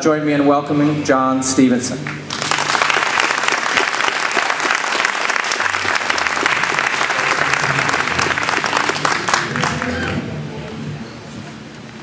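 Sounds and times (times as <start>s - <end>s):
audience applauding: 2.1s - 10.4s.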